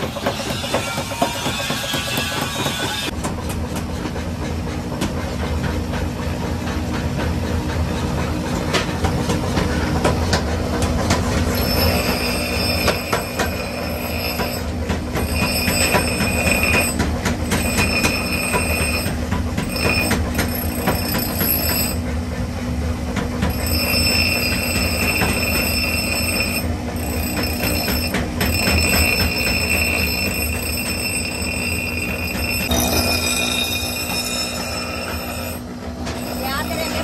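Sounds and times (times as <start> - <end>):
steel grinding on abrasive disc: 11.2 - 22.1, 23.4 - 37.0
high grinding screech: 11.5 - 22.0, 23.5 - 37.0.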